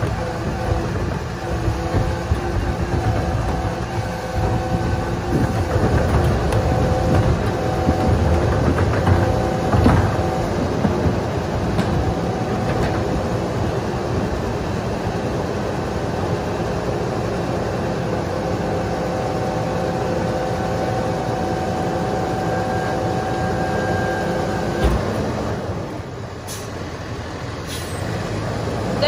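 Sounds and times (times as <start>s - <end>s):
trash knocking into hopper: 0.0s - 13.6s
garbage truck diesel engine: 0.0s - 29.0s.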